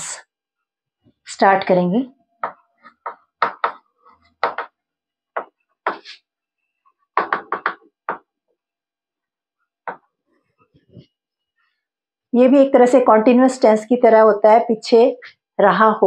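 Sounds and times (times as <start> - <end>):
chalk writing on a chalkboard: 5.9 - 6.2.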